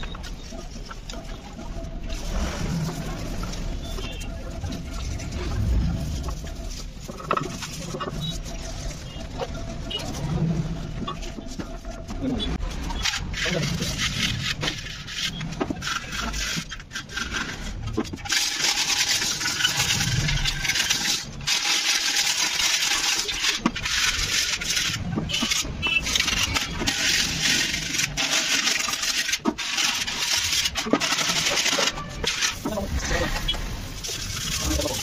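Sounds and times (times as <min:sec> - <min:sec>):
sandpaper rasping on paint: 0:12.7 - 0:35.0.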